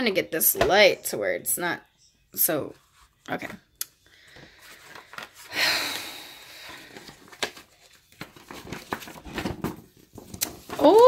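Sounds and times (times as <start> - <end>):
paper rustling and tapping: 6.9 - 11.0.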